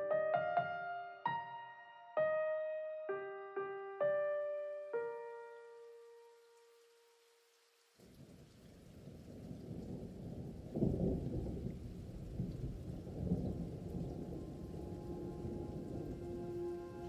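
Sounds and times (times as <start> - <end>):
rain-like hiss: 4.4 - 17.0
low rumbling thunder: 8.9 - 16.9.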